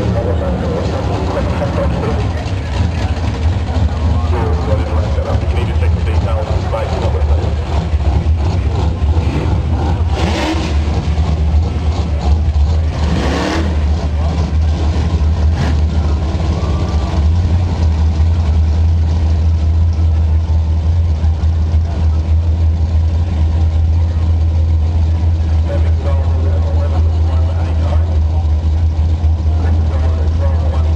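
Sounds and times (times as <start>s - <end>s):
car engine revving high: 0.0s - 17.9s.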